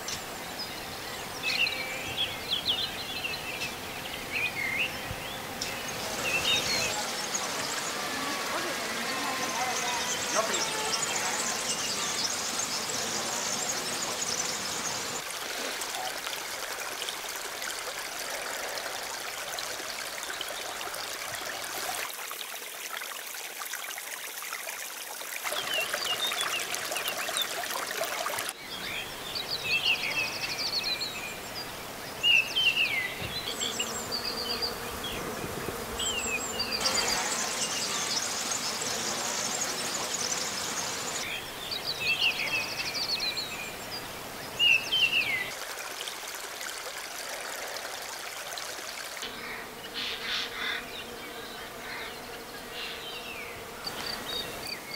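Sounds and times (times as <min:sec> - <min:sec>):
steady outdoor hiss: 0:00.0 - 0:54.9
small birds chirping: 0:25.6 - 0:45.6.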